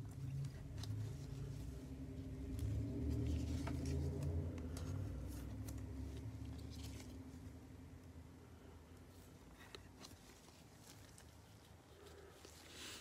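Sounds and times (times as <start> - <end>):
low handling rumble: 0.0 - 7.6.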